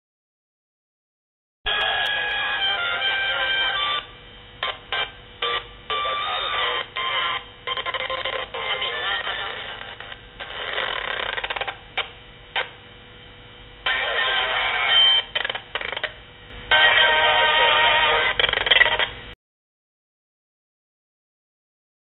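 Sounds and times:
radio music: 1.7 - 11.3, 13.8 - 19.4
radio broadcast speech: 7.8 - 10.2, 13.9 - 16.0, 16.7 - 19.1.

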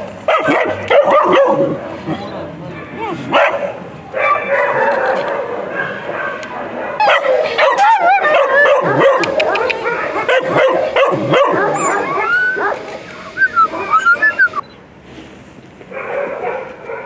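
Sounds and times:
puppies yipping and whining: 7.0 - 14.7.

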